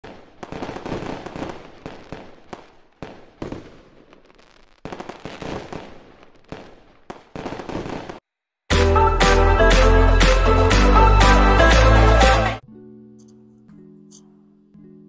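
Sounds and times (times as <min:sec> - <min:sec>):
fireworks bangs and crackling: 0:00.0 - 0:08.2.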